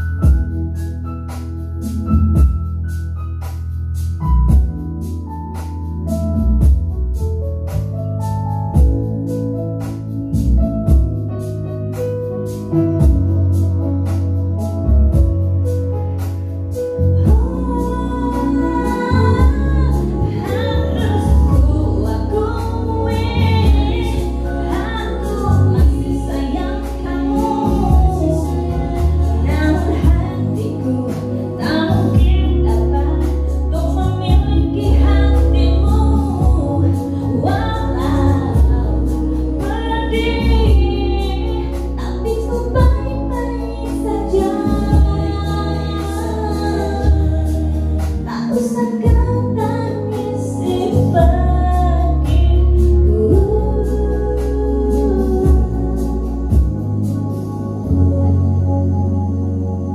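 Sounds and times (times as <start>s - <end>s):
sustained bass notes: 0.0s - 59.9s
woman singing: 17.0s - 57.0s.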